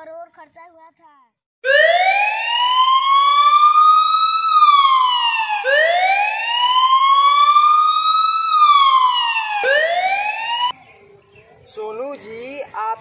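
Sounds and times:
wailing siren: 1.6s - 10.8s.

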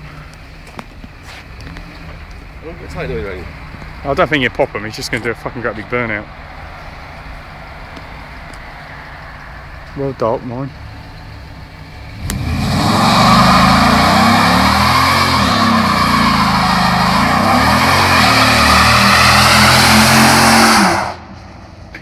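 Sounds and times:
tyres spinning and squealing: 10.8s - 21.6s
engine at high revs: 12.1s - 21.3s.

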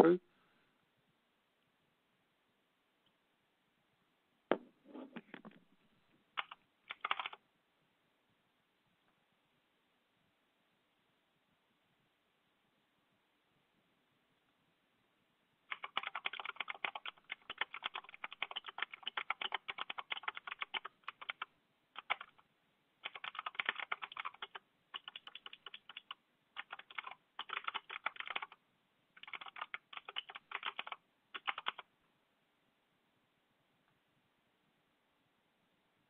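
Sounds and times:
keyboard typing: 6.4s - 7.4s, 15.7s - 22.4s, 23.0s - 28.6s, 29.2s - 31.9s.

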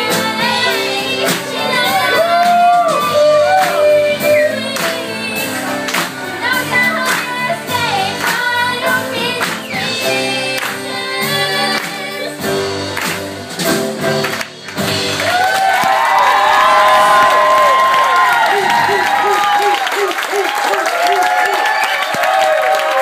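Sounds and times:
country band playing: 0.0s - 22.4s
steady drum beat: 11.9s - 23.0s.

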